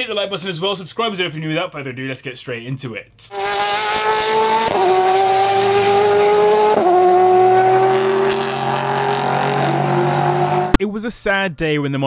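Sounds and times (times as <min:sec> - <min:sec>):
car engine revving through gears: 0:03.3 - 0:10.8.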